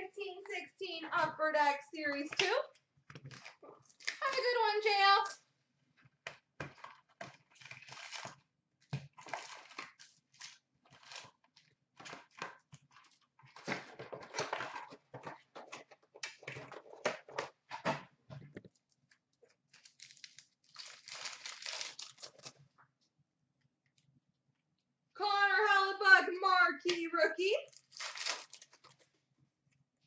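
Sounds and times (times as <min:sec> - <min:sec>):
foil wrappers crinkling and tearing: 0:07.5 - 0:08.4, 0:09.2 - 0:12.4, 0:19.7 - 0:22.7, 0:27.7 - 0:29.1.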